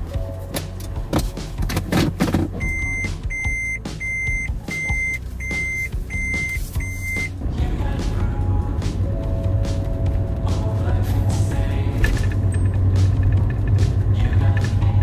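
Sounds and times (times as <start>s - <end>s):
car engine idling: 0.7s - 15.0s
car warning buzzer beeps: 2.6s - 7.3s.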